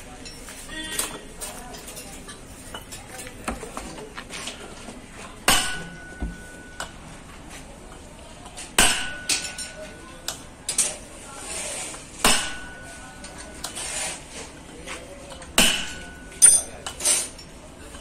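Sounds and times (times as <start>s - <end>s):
hammer striking steel: 5.4s - 6.9s, 8.8s - 9.8s, 12.2s - 13.2s, 15.6s - 17.0s
light metal clinks: 16.2s - 17.6s.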